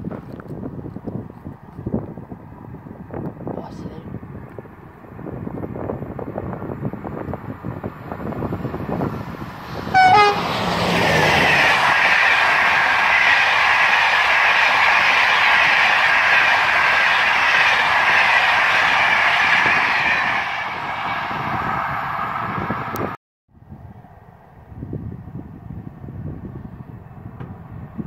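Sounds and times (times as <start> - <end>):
train wheels rushing on rail: 4.3 - 23.2
train horn blast: 9.9 - 10.7.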